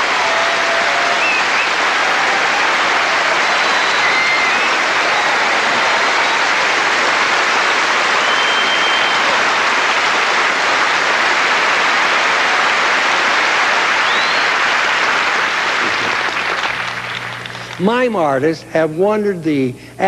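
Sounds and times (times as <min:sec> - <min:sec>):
audience applauding: 0:00.0 - 0:18.0
high whistles: 0:01.1 - 0:01.8, 0:03.5 - 0:04.9, 0:08.2 - 0:09.4, 0:14.0 - 0:14.6.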